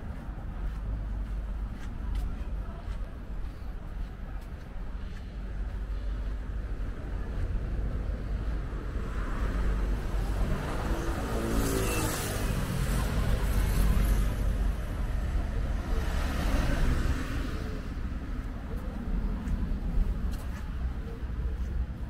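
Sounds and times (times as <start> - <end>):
steady low rumble: 16.8 - 22.0.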